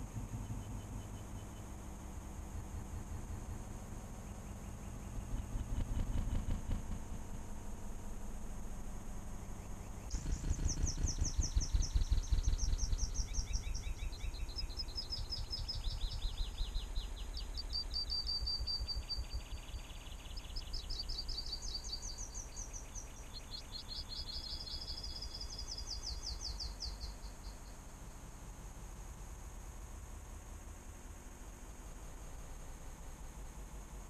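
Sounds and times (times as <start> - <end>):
low rumble: 0.0 - 20.6
songbirds chirping and trilling: 0.0 - 28.3.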